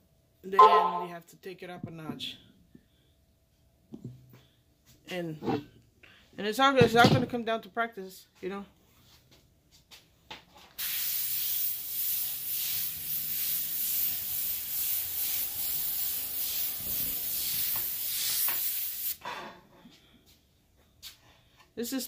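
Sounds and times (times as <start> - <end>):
airbrush hissing: 10.8 - 19.2.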